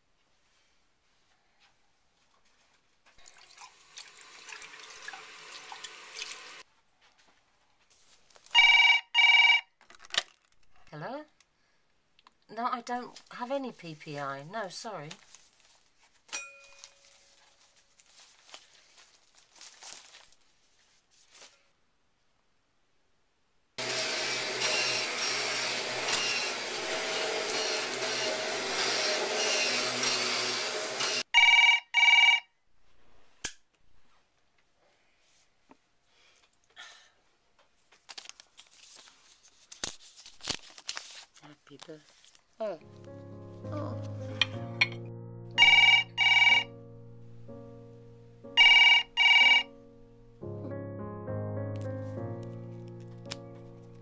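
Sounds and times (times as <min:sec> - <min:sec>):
desk telephone ringing: 0:08.6 - 0:09.8, 0:31.1 - 0:32.6, 0:45.6 - 0:46.7, 0:48.6 - 0:49.7
noisy whirring: 0:23.8 - 0:31.2
soft background music: 0:42.6 - 0:54.0.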